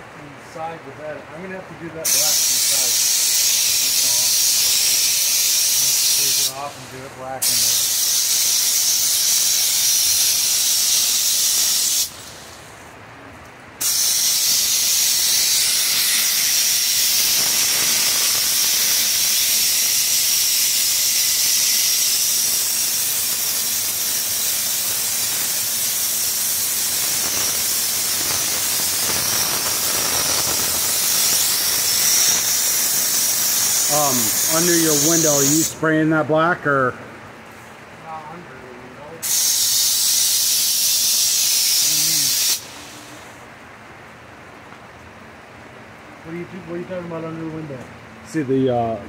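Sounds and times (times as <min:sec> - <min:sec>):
spray gun air hissing: 0:02.0 - 0:06.8, 0:07.4 - 0:12.6, 0:13.8 - 0:35.8, 0:39.2 - 0:43.3.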